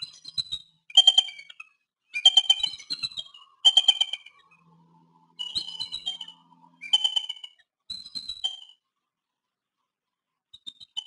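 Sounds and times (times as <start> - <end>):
eagle chattering whistles: 2.2 - 4.5.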